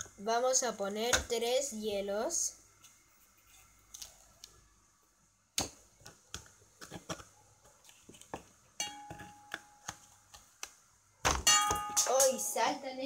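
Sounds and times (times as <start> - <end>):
glass ringing ding: 8.8 - 9.6, 11.5 - 12.2.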